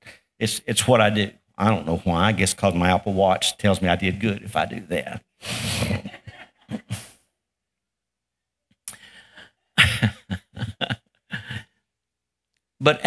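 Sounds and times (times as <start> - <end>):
man laughing: 5.7 - 7.2, 9.8 - 11.8.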